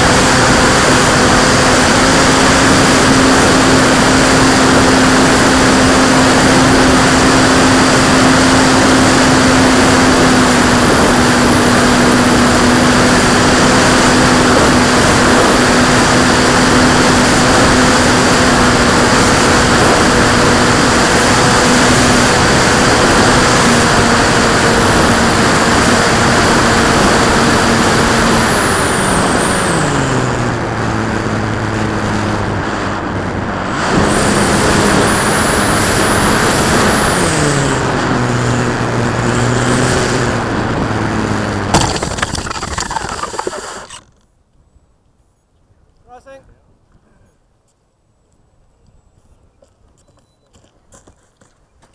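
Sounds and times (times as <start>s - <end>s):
model aircraft motor and propeller: 0.0s - 30.5s, 41.2s - 44.3s.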